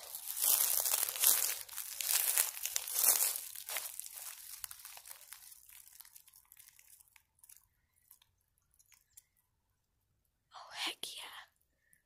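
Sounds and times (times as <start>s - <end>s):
faint rustling: 0.0s - 9.2s
small ticks: 6.0s - 9.4s.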